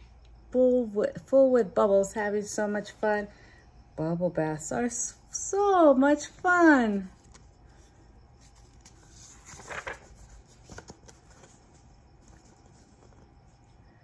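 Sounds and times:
low steady hum: 0.0 - 14.0
page turning paper rustle: 7.1 - 7.6, 8.4 - 13.6.

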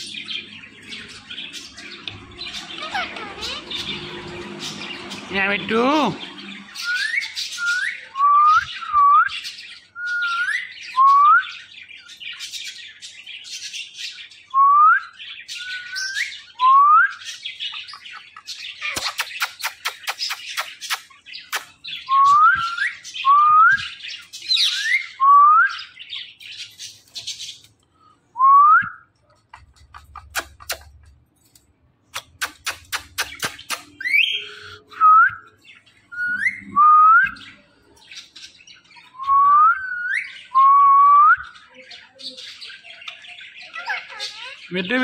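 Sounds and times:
parakeet harsh chatter: 0.0 - 8.1, 17.6 - 21.8, 29.5 - 31.3, 32.1 - 34.9, 41.8 - 45.0.

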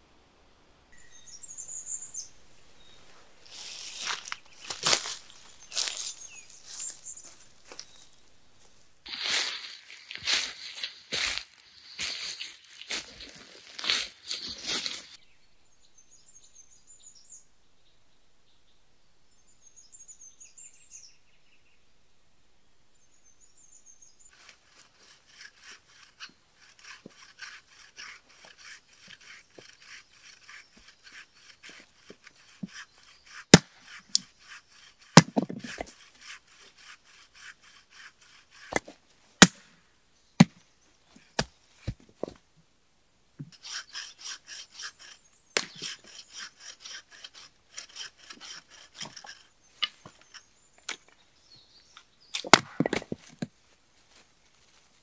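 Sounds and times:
hand saw cutting wood: 3.5 - 15.2, 24.3 - 39.6, 43.4 - 53.5.

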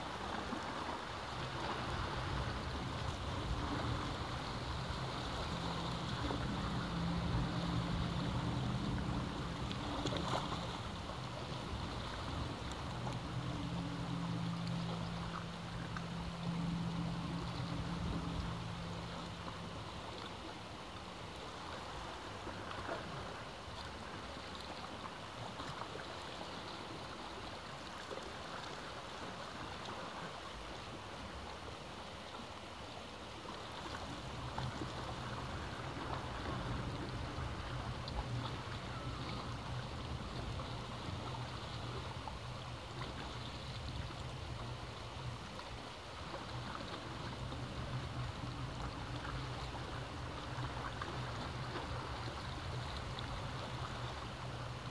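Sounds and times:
ocean waves washing: 0.0 - 54.9
steady low rumble: 0.2 - 23.4, 34.0 - 54.9.

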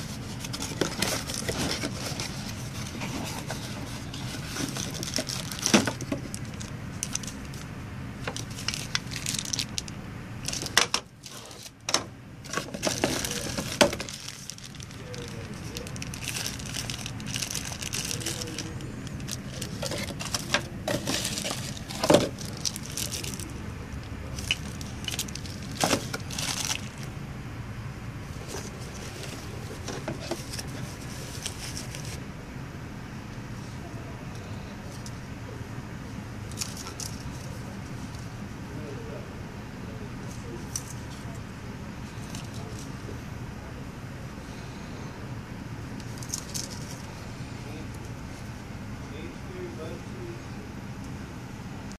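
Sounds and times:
cardboard and plastic rustling: 0.0 - 27.2, 28.3 - 32.2, 36.5 - 38.3, 42.0 - 43.1, 46.0 - 48.5.

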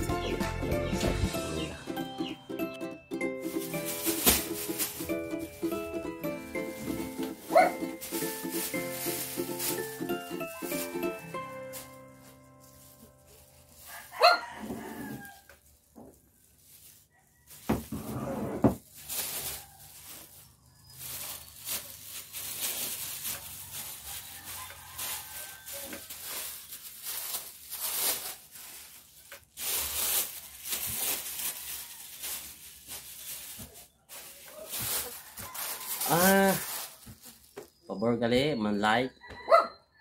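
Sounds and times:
plastic bag rustling and crinkling: 3.4 - 37.9
dog barking: 7.4 - 7.8, 14.2 - 14.4, 39.4 - 39.8.

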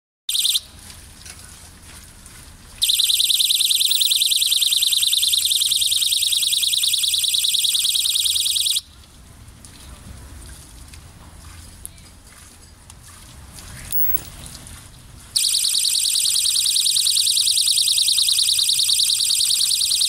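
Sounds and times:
high-pitched warbling electronic alarm: 0.3 - 0.7, 2.8 - 8.9, 13.9 - 14.3, 15.4 - 20.0.

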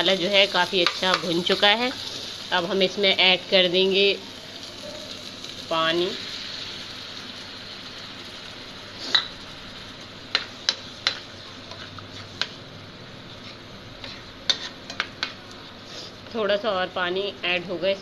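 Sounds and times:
faint sizzle: 0.0 - 18.0
spatula stirring in a pan: 0.1 - 2.5, 6.2 - 16.2
spatula tapping a pan: 0.8 - 1.3, 10.3 - 11.3, 14.5 - 15.4.

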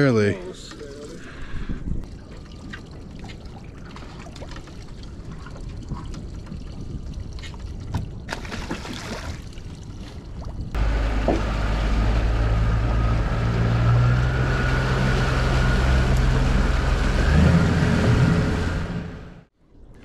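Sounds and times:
water noise: 0.0 - 20.0
wind: 0.0 - 20.0
boat motor running: 10.8 - 19.4.

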